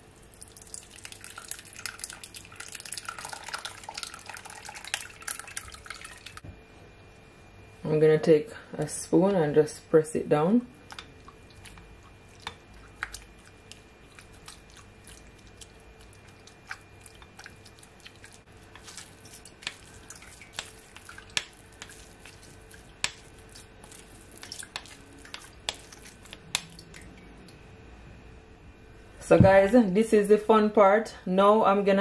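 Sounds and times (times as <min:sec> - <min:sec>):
spoon scraping pulp against strainer: 0:12.4 - 0:26.7.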